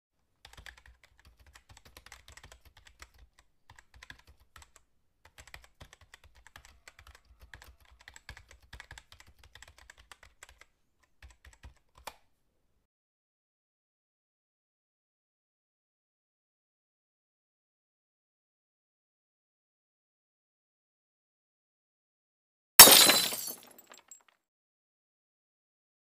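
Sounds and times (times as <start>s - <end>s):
keyboard typing: 0.4s - 12.2s.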